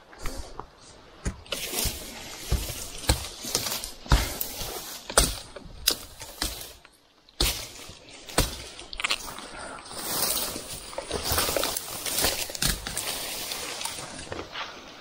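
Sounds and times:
foliage rustling and crackling: 0.0s - 15.0s
machete chopping undergrowth: 1.3s - 9.2s, 11.2s - 13.4s.

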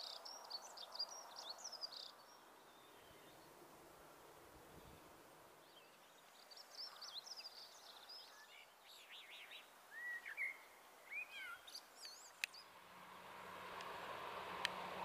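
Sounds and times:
blackbird singing: 0.0s - 3.5s, 5.7s - 12.7s.

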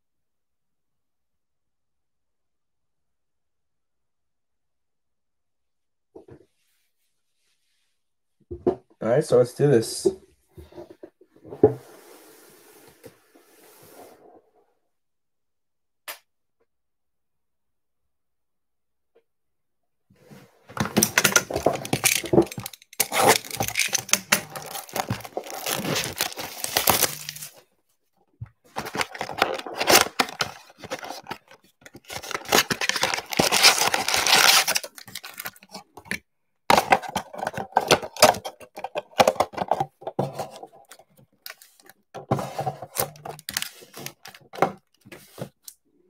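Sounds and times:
plastic wrappers crinkling: 20.8s - 27.6s, 28.7s - 35.9s, 42.9s - 44.5s
cardboard box tearing: 21.5s - 27.6s, 28.8s - 35.6s.

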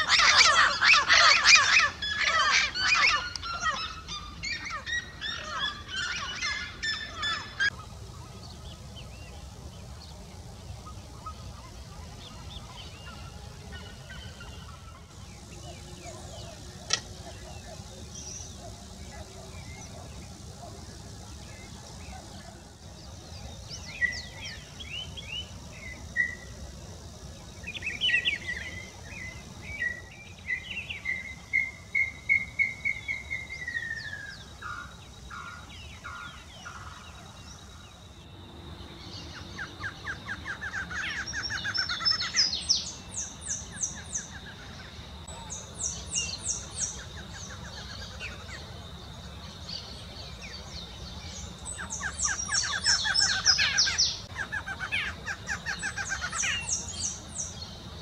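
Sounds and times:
steady high whine: 0.0s - 58.0s.

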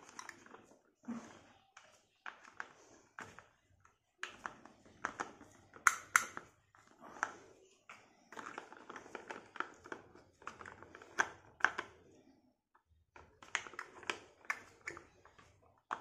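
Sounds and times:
plastic toy clicks and rubbing: 8.3s - 12.0s, 13.2s - 16.0s.

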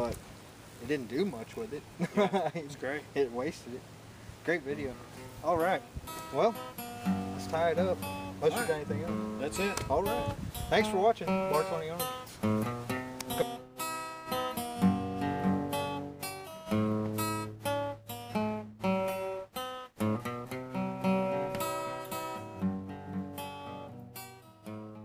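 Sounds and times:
acoustic guitar music: 2.8s - 25.0s.

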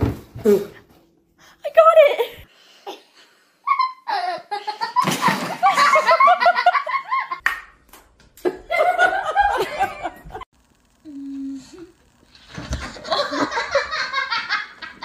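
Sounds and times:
people laughing: 3.7s - 7.4s, 8.4s - 10.4s, 12.8s - 15.0s.

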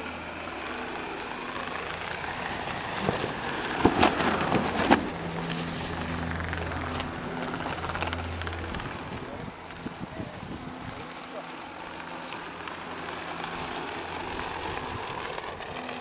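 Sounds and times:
wind buffeting microphone: 2.3s - 11.1s.

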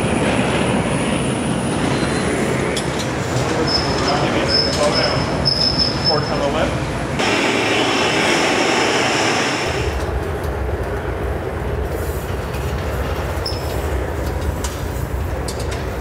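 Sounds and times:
gas furnace roaring: 6.4s - 16.0s.

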